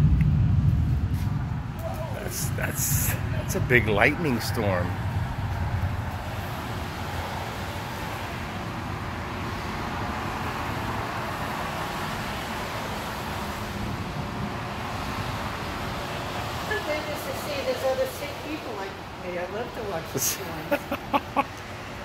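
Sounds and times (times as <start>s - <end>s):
tyres hissing on wet road: 2.2s - 22.0s.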